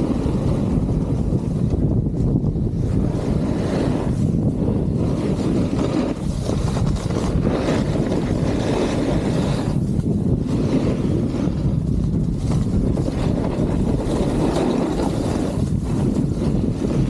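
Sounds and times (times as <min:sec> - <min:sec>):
snowboard edge scraping snow: 0:00.0 - 0:17.0
wind noise on microphone: 0:00.0 - 0:17.0.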